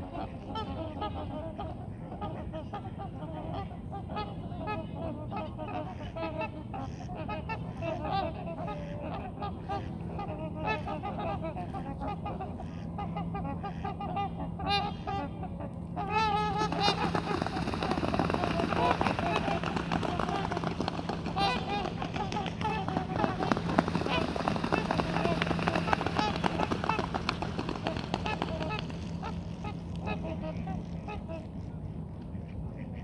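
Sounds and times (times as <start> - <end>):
swans honking: 0.1 - 32.0
wings beating and feet splashing: 16.0 - 31.4.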